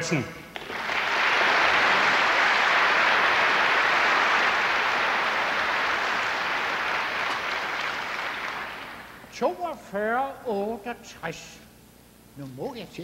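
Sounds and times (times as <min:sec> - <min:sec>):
audience applauding: 0:00.5 - 0:09.3.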